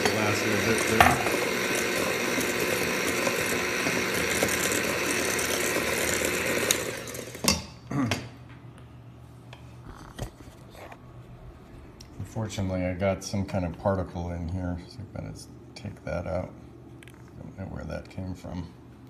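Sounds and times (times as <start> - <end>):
electric hand mixer whisking: 0.0 - 7.6.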